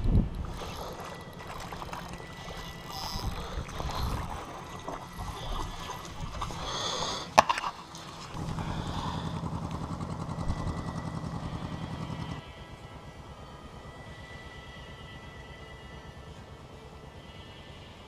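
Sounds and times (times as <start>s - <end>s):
low pulsing hum: 0.0s - 18.0s
fish splashing in shallow water: 0.4s - 9.2s.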